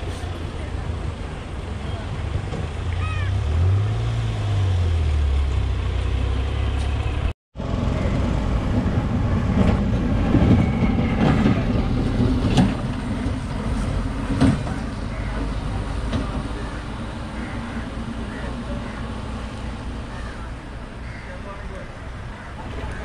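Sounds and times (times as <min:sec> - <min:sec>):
lorry diesel engine under load: 0:00.0 - 0:23.0
low vehicle engine drone: 0:00.0 - 0:23.0
truck clanks and rattles: 0:01.7 - 0:03.0, 0:08.6 - 0:20.2.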